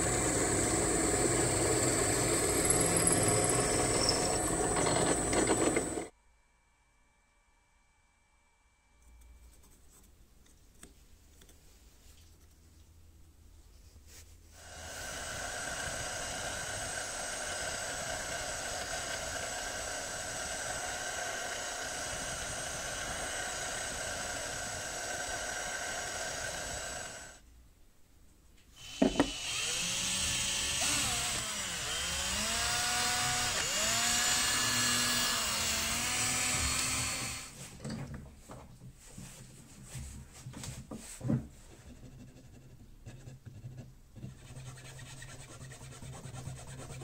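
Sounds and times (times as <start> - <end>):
cordless drill drilling wood: 0.0 - 6.1, 14.7 - 27.4, 28.8 - 37.6
drill press boring into wood: 0.0 - 6.1, 14.7 - 27.4, 28.8 - 37.6.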